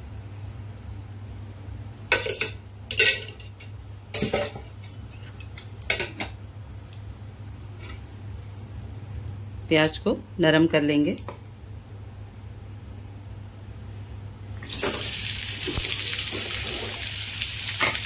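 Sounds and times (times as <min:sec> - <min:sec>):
low steady hum: 0:00.0 - 0:18.0
metal utensils clanking on pots: 0:02.1 - 0:03.6.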